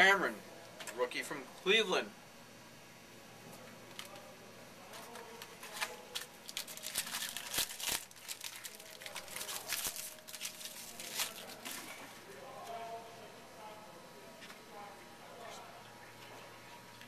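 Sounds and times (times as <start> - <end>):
foil wrapper crinkling and tearing: 4.9 - 12.0.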